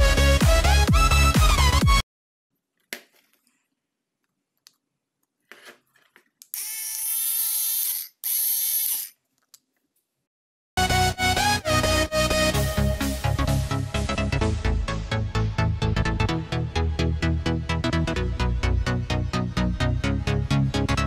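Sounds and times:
small electric motor whirring: 6.5s - 9.2s.

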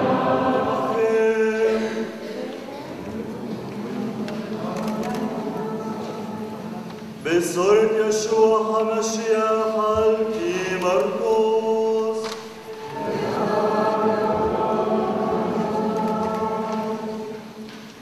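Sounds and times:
congregation singing response: 0.0s - 18.0s
man chanting: 7.2s - 12.4s.

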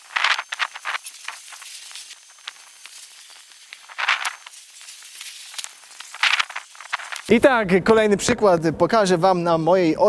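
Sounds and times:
chalk scraping on asphalt: 0.0s - 7.3s.

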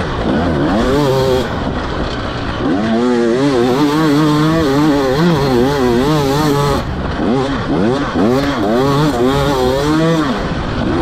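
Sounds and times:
two-stroke motorcycle engine revving: 0.0s - 11.0s.

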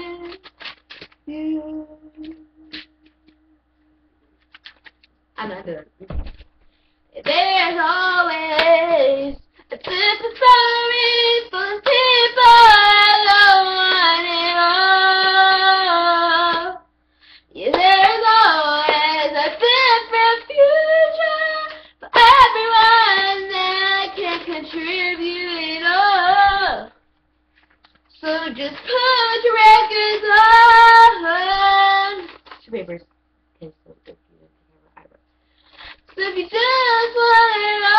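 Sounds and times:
girl singing unaccompanied: 0.0s - 0.5s, 1.2s - 3.6s, 7.1s - 16.9s, 17.5s - 27.0s, 28.1s - 32.4s, 36.0s - 37.9s.

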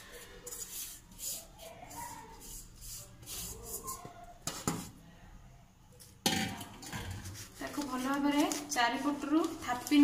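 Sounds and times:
paper rustling: 7.2s - 10.0s.

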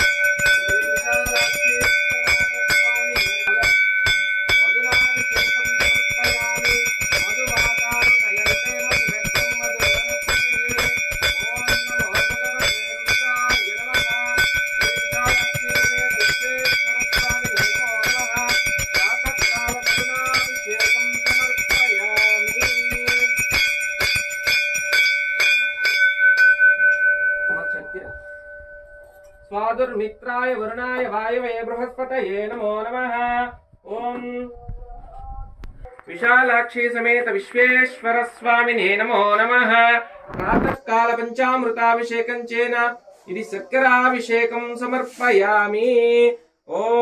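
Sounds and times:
bell rung rapidly: 0.0s - 30.0s
faint voice chanting: 33.8s - 45.2s.

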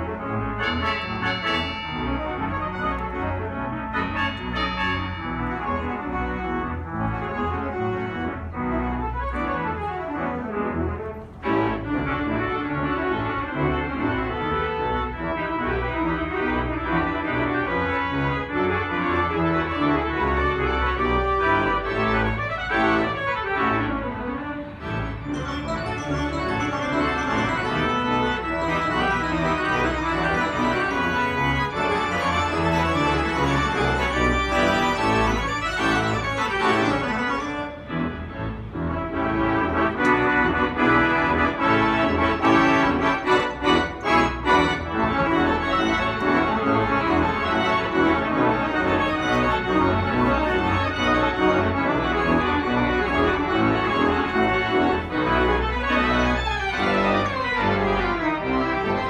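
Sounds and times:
pipe organ playing chords: 0.0s - 59.0s.

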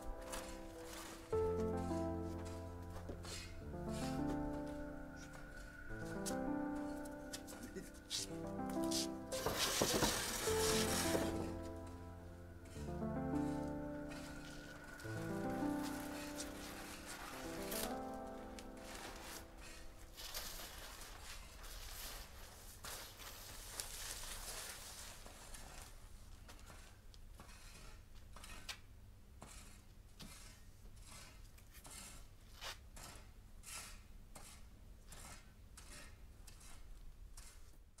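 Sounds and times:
plastic film crackles: 0.0s - 3.6s, 6.1s - 12.2s, 13.6s - 26.3s
plastic film rustling: 0.0s - 26.7s.

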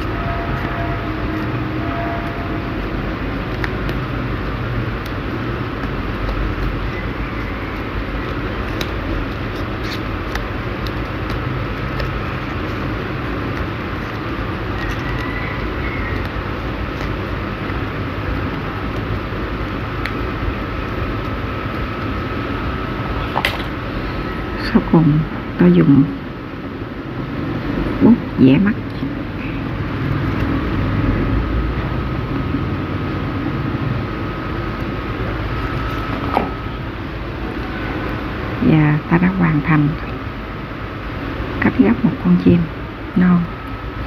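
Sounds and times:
low rumble and hiss: 0.0s - 44.0s
paper being folded: 2.8s - 23.9s.

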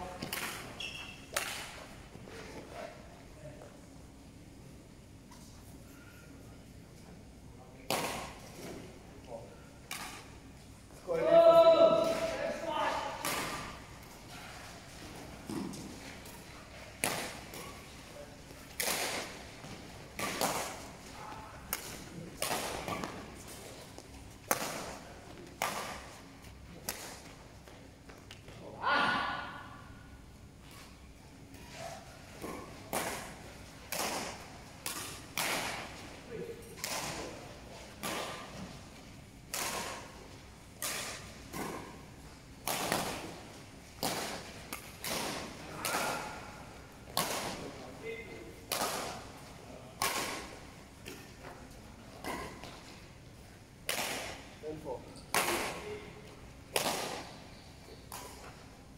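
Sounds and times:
rackets striking shuttlecock: 0.2s - 1.9s, 9.8s - 10.4s, 13.1s - 14.2s, 15.5s - 17.9s, 18.7s - 27.3s, 32.3s - 36.1s, 39.5s - 47.7s, 48.6s - 51.4s, 56.7s - 58.6s.

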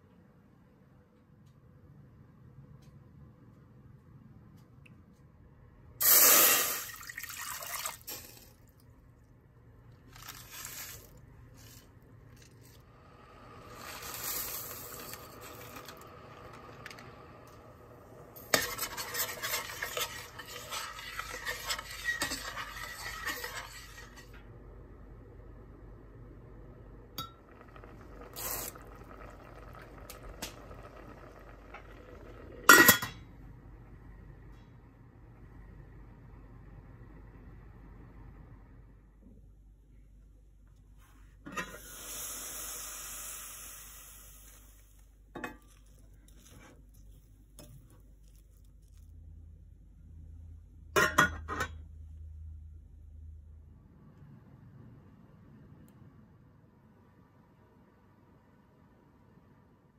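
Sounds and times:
rice grains poured into liquid: 6.0s - 8.8s, 9.9s - 17.6s, 27.4s - 32.7s
liquid pouring into saucepan: 6.1s - 8.6s, 27.2s - 32.7s
seasoning shaken: 10.1s - 11.8s.

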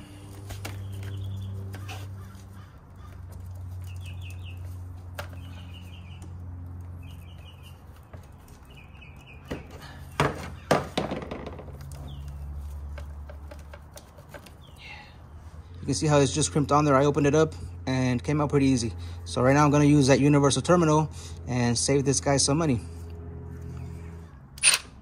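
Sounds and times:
bird chirps: 0.7s - 3.1s, 3.8s - 6.3s, 7.0s - 10.7s.

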